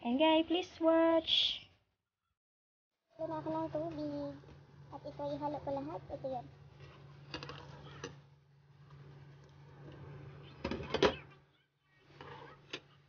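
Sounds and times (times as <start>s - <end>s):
steady low hum: 3.1s - 13.0s.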